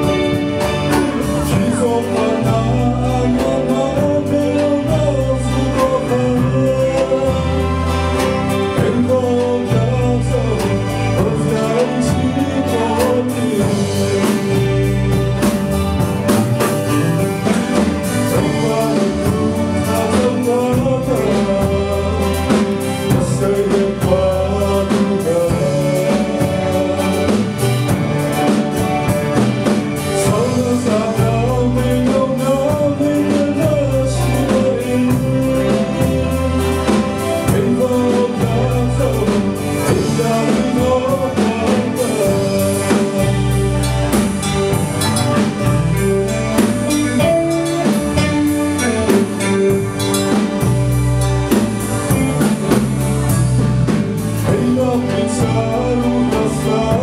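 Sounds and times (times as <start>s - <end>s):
man singing into microphone: 0.0s - 15.6s, 17.3s - 28.5s, 30.0s - 44.2s, 54.2s - 57.0s
live band playing: 0.0s - 57.0s.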